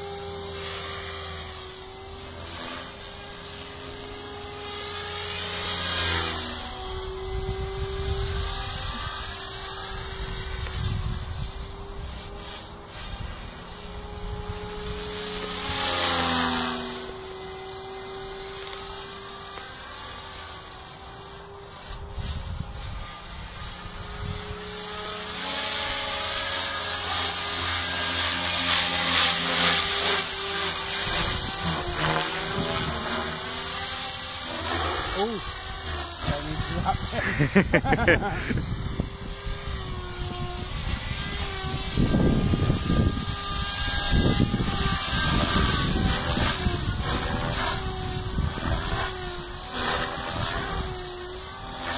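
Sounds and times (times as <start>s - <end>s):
model helicopter motor whine: 0.0s - 51.9s
wind rumbling on microphone: 7.2s - 12.4s, 35.2s - 49.1s.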